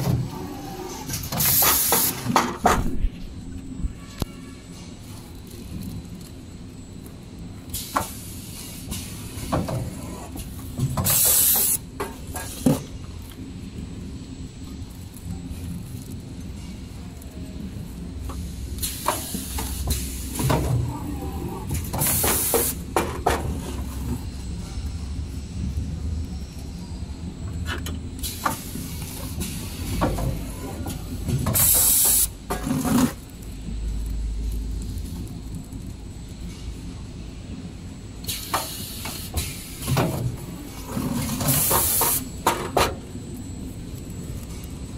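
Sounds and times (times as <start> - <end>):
packing machine humming: 0.0 - 44.9
loud hiss: 0.8 - 3.4, 7.7 - 9.6, 11.0 - 12.8, 18.3 - 20.6, 21.8 - 24.7, 28.2 - 32.4, 38.2 - 42.7.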